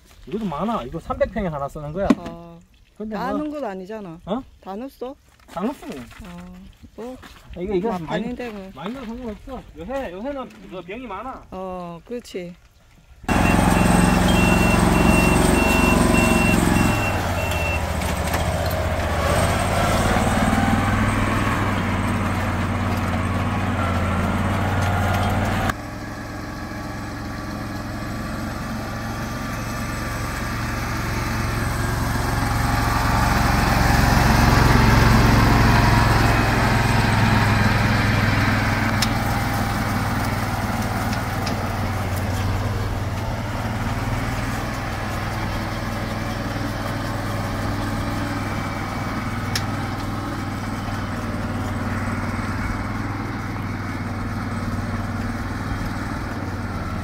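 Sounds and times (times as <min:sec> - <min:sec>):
high on-off beep: 0:13.3 - 0:17.9
farm machine engine running: 0:13.3 - 0:57.0.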